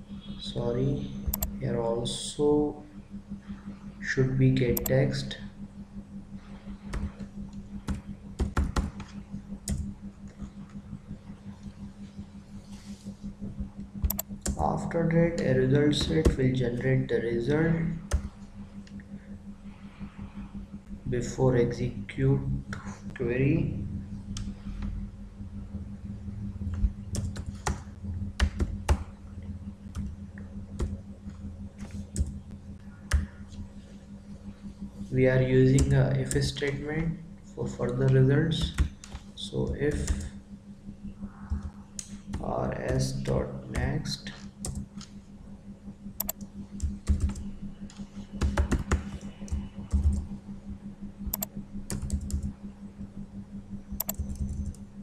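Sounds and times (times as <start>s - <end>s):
steady low hum: 0.0s - 55.0s
computer keyboard typing: 1.3s - 1.6s, 6.8s - 9.9s, 14.0s - 14.8s, 26.7s - 29.1s, 29.8s - 32.4s, 35.6s - 36.8s, 37.9s - 40.3s, 44.6s - 45.1s, 46.2s - 50.3s, 51.3s - 52.5s, 54.0s - 54.8s.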